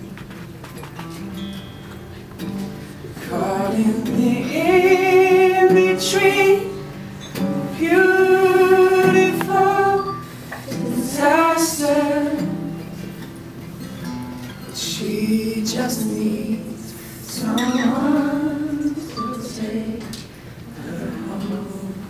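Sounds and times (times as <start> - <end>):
guitar accompaniment: 0.0 - 22.0
man singing with vibrato: 3.2 - 12.8, 14.8 - 22.0.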